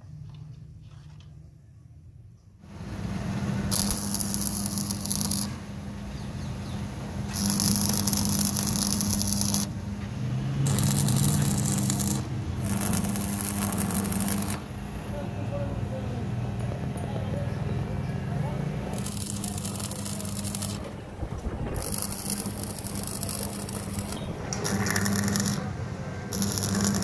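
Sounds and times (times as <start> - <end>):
steady low hum: 2.0 - 27.0
welding arc crackling and sizzling: 2.8 - 15.0, 18.9 - 27.0.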